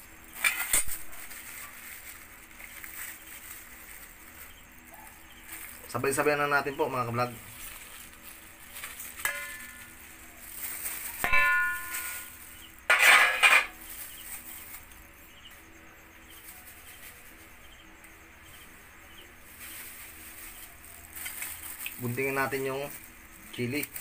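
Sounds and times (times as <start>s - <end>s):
seasonings rustling: 0.0s - 24.0s
metal tray clinking on bowl: 9.2s - 9.9s, 11.2s - 13.8s
metallic clang: 9.2s - 9.9s, 11.2s - 13.8s.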